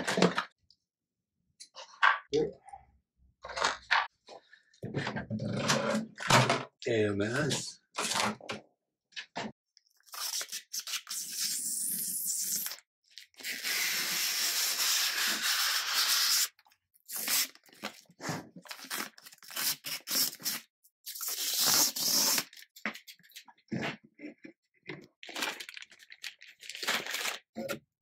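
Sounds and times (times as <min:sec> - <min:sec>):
plastic film peeling and crinkling: 0:15.1 - 0:23.4, 0:25.2 - 0:27.5.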